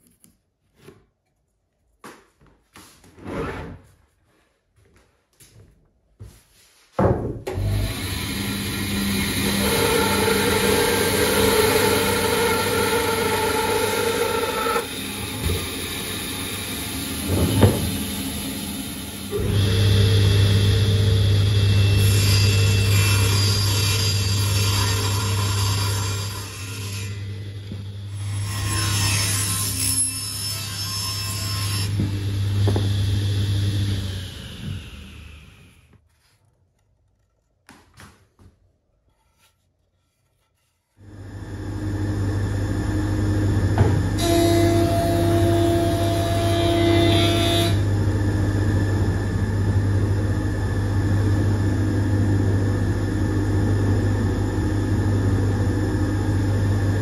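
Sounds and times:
table saw motor humming: 0:07.6 - 0:29.6, 0:31.4 - 0:35.9, 0:41.0 - 0:57.0
bandsaw motor humming: 0:07.6 - 0:30.0, 0:41.0 - 0:57.0.

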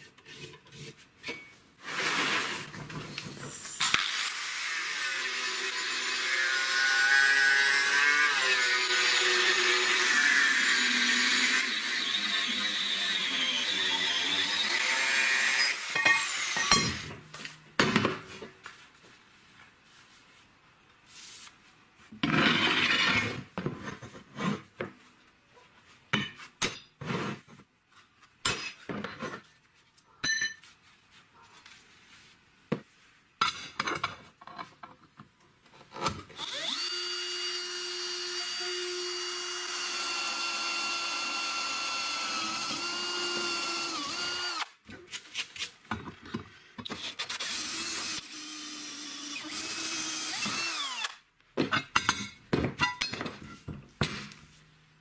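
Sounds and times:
electric drill whining into steel: 0:03.5 - 0:17.0, 0:36.4 - 0:44.8, 0:46.9 - 0:51.3
loud scraping on metal: 0:22.2 - 0:23.4.

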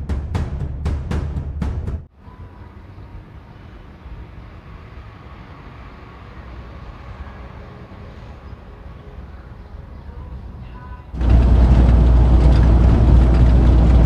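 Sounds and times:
drum hit: 0:00.0 - 0:02.1
low rumble of vehicle noise: 0:00.0 - 0:14.0.

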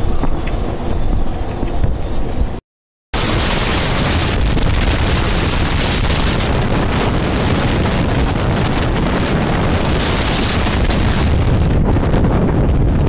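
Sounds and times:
wind buffeting microphone: 0:03.2 - 0:13.0.

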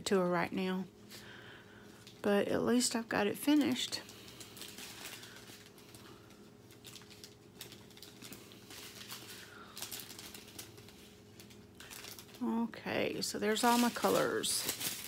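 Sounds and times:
steady low hum: 0:00.0 - 0:15.0
plastic packets crinkling: 0:03.4 - 0:15.0.

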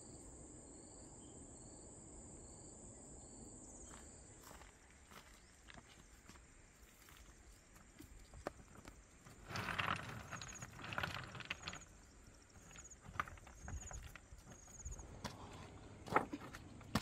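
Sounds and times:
insect chirping: 0:00.0 - 0:16.0
footsteps on loose stones: 0:03.9 - 0:17.0
stone clacking: 0:09.3 - 0:15.4.

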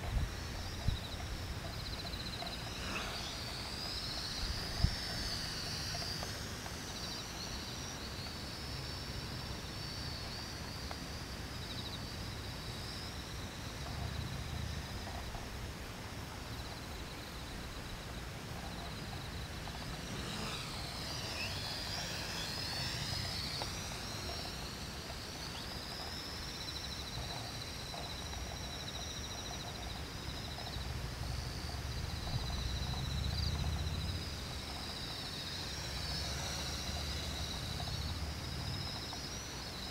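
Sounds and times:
wind rumble on microphone: 0:00.0 - 0:03.6, 0:29.5 - 0:35.0
model airplane motor whining: 0:00.0 - 0:39.9.

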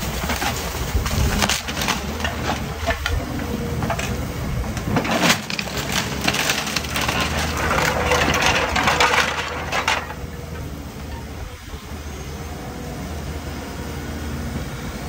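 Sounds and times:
wood cracking: 0:00.0 - 0:10.8
debris clattering: 0:00.0 - 0:11.4
excavator diesel engine running: 0:00.0 - 0:15.0.

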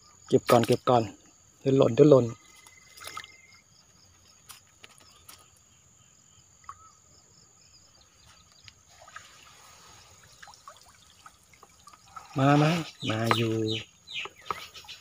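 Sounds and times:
insect pulsing chirp: 0:00.0 - 0:15.0
insects droning: 0:00.0 - 0:15.0
water trickling and dripping: 0:02.4 - 0:03.6, 0:08.4 - 0:14.8.

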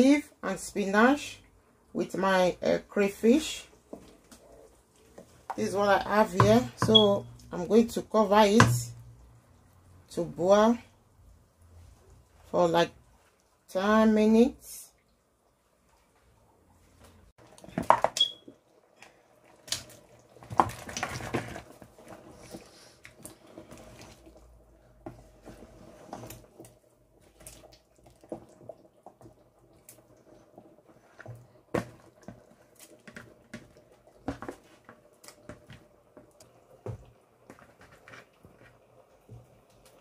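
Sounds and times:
wooden spoon knocking pot: 0:06.3 - 0:07.4
soup bubbling on the boil: 0:17.4 - 0:40.0.

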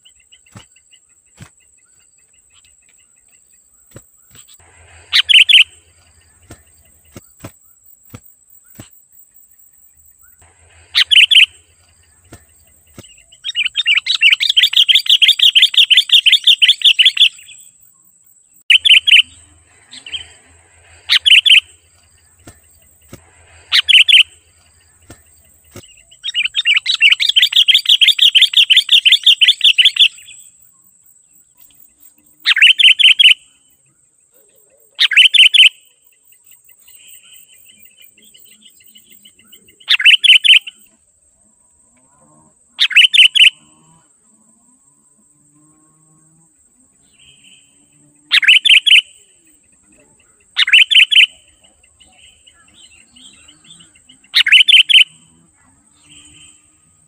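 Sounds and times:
bird calling loudly: 0:03.9 - 0:07.5, 0:10.4 - 0:17.5, 0:18.7 - 0:30.2, 0:32.4 - 0:33.4, 0:35.0 - 0:35.8, 0:39.8 - 0:40.8, 0:42.8 - 0:43.6, 0:48.3 - 0:49.2, 0:50.5 - 0:55.2
rapid chattering bird notes: 0:03.9 - 0:07.5, 0:10.4 - 0:17.2, 0:18.7 - 0:30.0
faint steady high whine: 0:04.3 - 0:07.5, 0:09.5 - 0:14.3, 0:18.6 - 0:27.2.

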